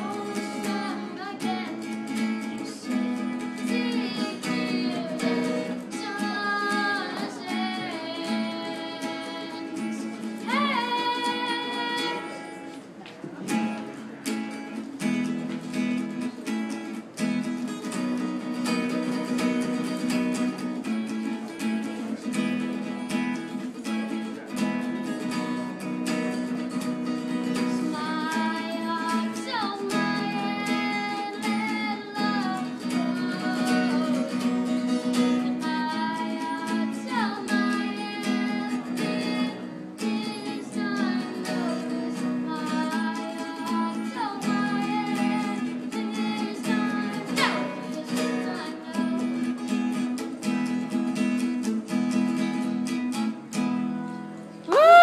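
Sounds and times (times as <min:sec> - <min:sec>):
boy singing: 0:00.0 - 0:12.5, 0:27.4 - 0:49.7
acoustic guitar strumming: 0:00.0 - 0:55.0.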